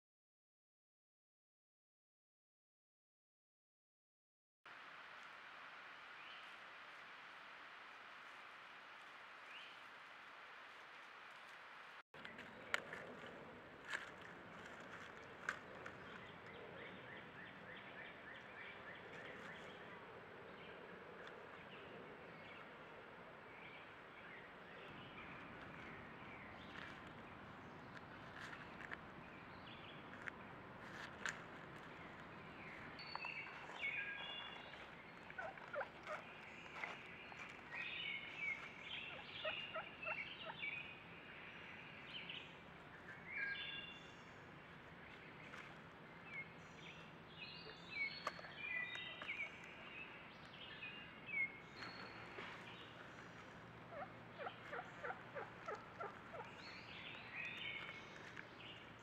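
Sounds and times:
turkeys gobbling: 35.3s - 36.2s, 53.9s - 56.6s.

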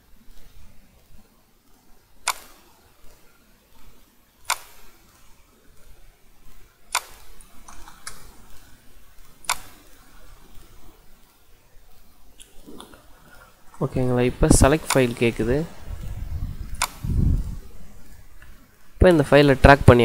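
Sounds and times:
computer mouse clicking: 0.3s - 13.4s, 14.6s - 15.4s, 16.0s - 18.6s.

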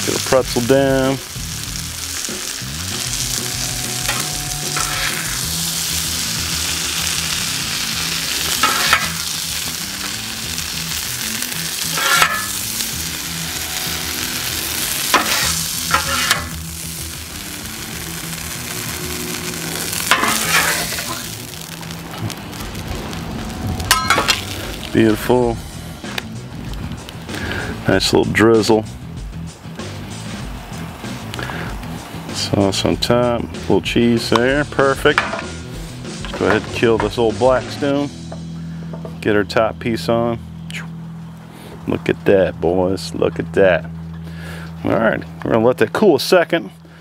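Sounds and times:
meat sizzling on a griddle: 0.0s - 25.2s
metal spatulas scraping: 3.3s - 5.6s, 8.5s - 9.2s, 11.8s - 12.6s, 13.8s - 16.5s, 19.9s - 21.3s.

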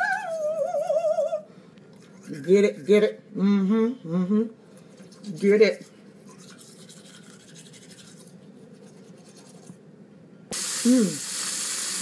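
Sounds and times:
toothbrush scrubbing teeth: 4.9s - 9.8s
loud steady hiss: 10.5s - 12.0s.

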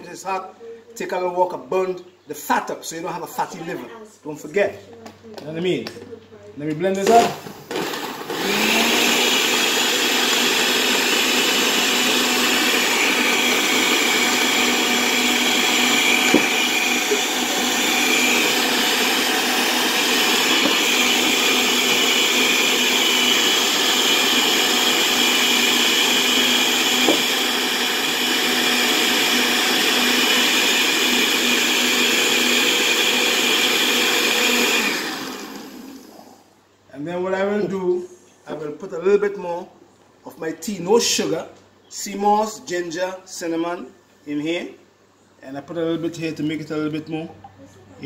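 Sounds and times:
blender running at full speed: 7.0s - 36.4s.

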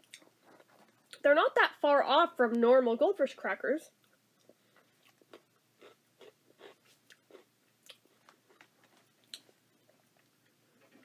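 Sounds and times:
person chewing crackers: 4.0s - 10.9s.

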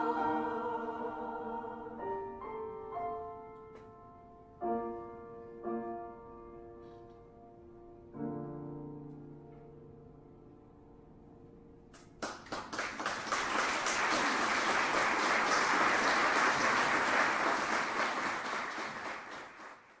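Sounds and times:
audience applause: 12.2s - 20.0s.

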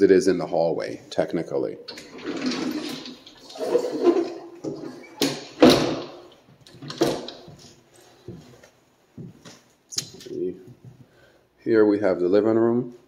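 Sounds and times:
closet door pushed shut: 1.9s - 7.5s
footsteps on hardwood floor: 7.4s - 9.7s, 10.7s - 11.1s.

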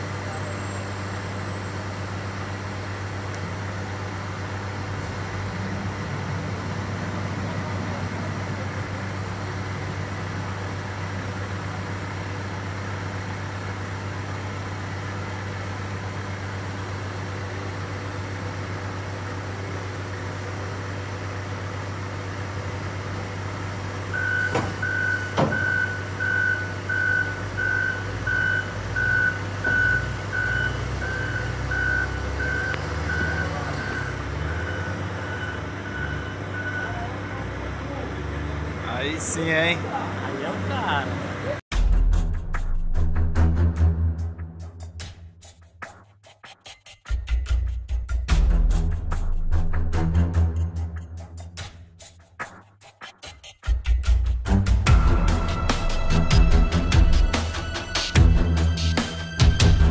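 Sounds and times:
diesel engine running: 0.0s - 45.4s, 53.7s - 59.9s
reversing alarm beeping: 24.1s - 37.2s.

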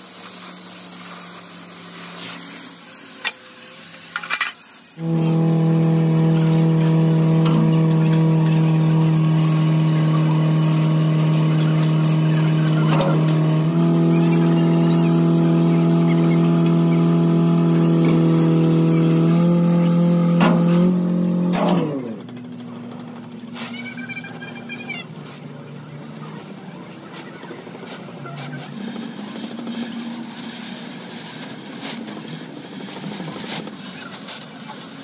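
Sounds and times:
angle grinder whining on steel: 5.0s - 24.4s.

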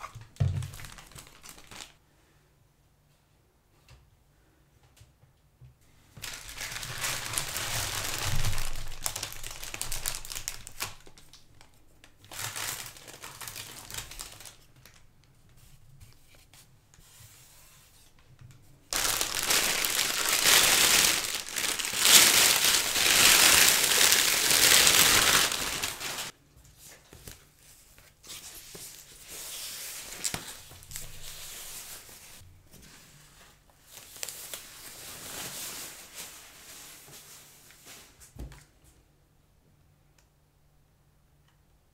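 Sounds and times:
plastic packaging crinkling: 0.0s - 2.0s, 6.2s - 15.1s, 18.9s - 26.4s, 33.9s - 37.1s.

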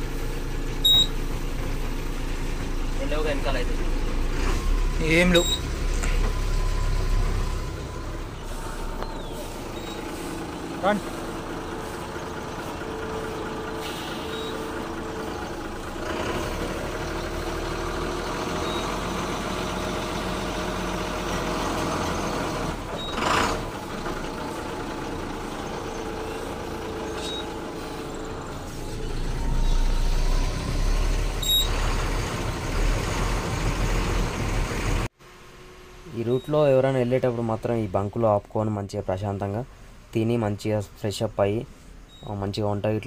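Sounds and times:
diesel truck engines rumbling: 0.0s - 43.0s
air brake hiss: 8.4s - 12.2s, 13.6s - 14.8s.

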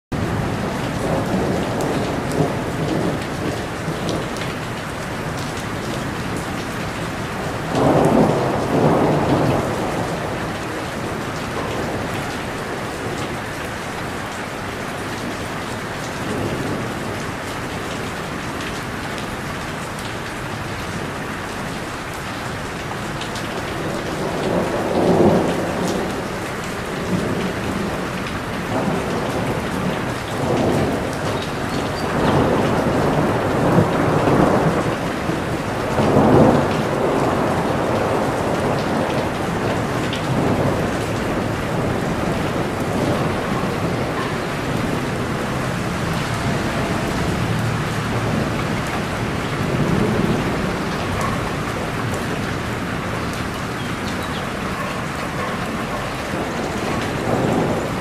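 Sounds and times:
rain falling on leaves: 0.1s - 58.0s
thunder: 7.6s - 13.3s, 27.0s - 54.6s, 55.4s - 58.0s.

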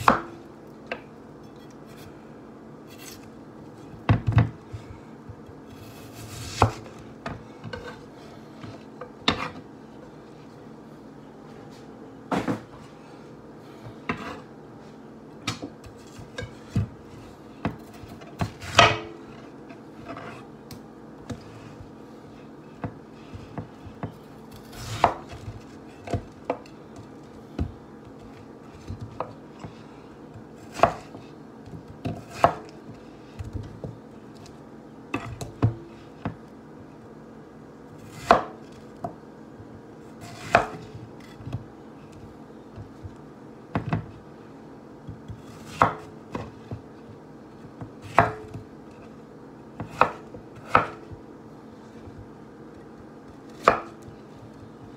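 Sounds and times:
knife chopping on wooden board: 9.3s - 9.6s, 22.8s - 26.7s, 27.5s - 32.8s, 38.0s - 39.2s, 40.2s - 41.7s, 45.1s - 46.8s, 47.8s - 48.7s, 49.8s - 51.2s, 53.3s - 54.7s.

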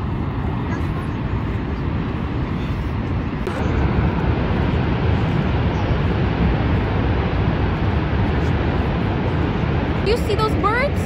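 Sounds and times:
wind on microphone: 0.0s - 11.0s
waterfall rushing: 0.1s - 11.0s.

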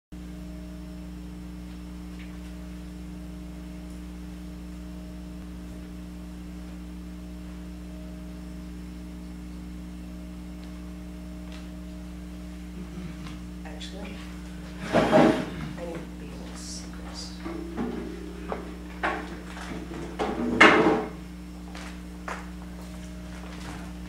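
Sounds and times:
electrical mains hum: 0.2s - 24.0s
faint high tone: 15.8s - 21.3s.

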